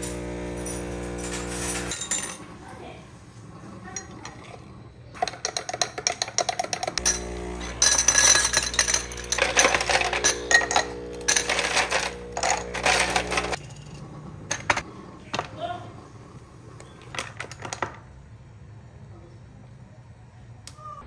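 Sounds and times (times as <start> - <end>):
metal straw clinking against glass: 5.2 - 13.6
ice cubes clinking into glasses: 5.2 - 14.8
steady hum: 6.9 - 15.2.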